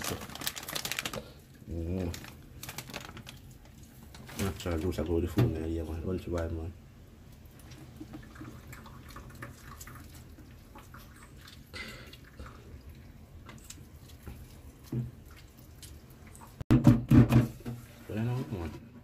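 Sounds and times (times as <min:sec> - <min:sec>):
fruit pulp squishing: 0:00.0 - 0:06.5
juice dripping: 0:00.0 - 0:16.6.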